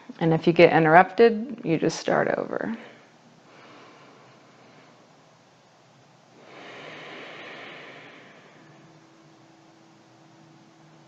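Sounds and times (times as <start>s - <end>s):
faint steady hiss: 0.0s - 11.0s
slow breath: 2.8s - 5.2s, 6.3s - 9.3s.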